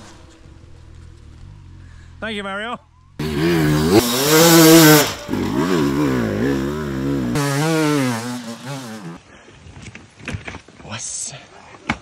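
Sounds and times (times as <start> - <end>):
motorcycle engine revving: 3.1 - 9.2.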